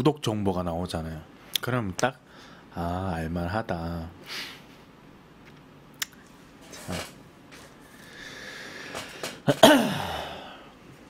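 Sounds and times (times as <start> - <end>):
man's breathy vocal sound: 8.0 - 10.8.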